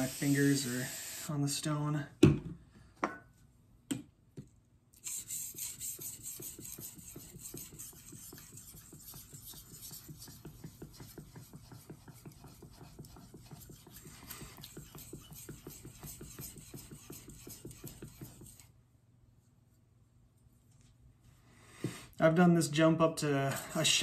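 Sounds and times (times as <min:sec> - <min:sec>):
knife scraping on whetstone: 0:05.0 - 0:18.7.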